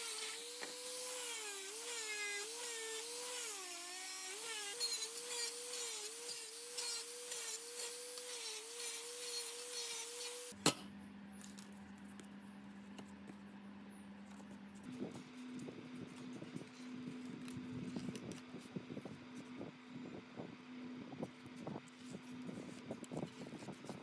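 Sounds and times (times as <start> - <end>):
angle grinder stripping rust: 0.0 - 10.5.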